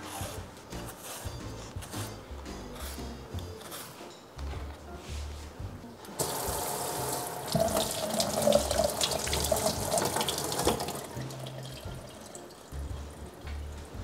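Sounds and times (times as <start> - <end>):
tap water splashing in sink: 6.2 - 12.1.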